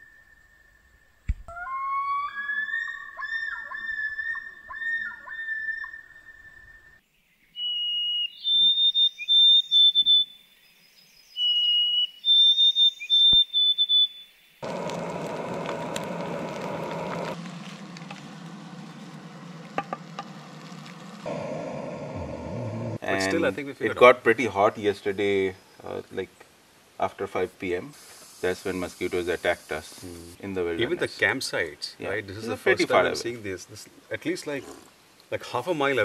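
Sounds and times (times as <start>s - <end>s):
bird whistled song: 0.0s - 14.6s
bird wavering wailing call: 1.5s - 7.0s, 11.4s - 23.0s
steady rushing noise: 14.6s - 23.0s.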